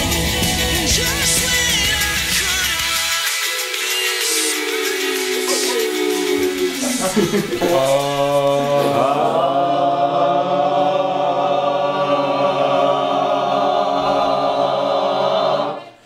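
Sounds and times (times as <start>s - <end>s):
men singing a held chord: 0.0s - 15.8s.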